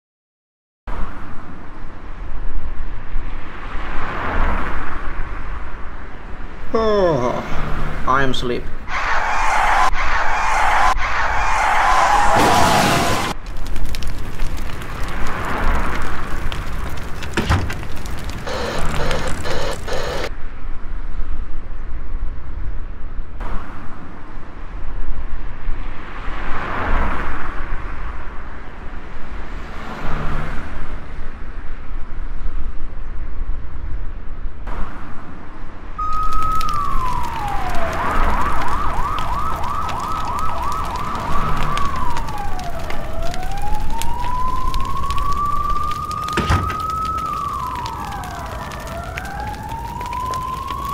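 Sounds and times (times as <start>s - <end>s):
emergency vehicle siren: 8.9s - 13.4s, 17.8s - 20.3s, 36.0s - 50.9s.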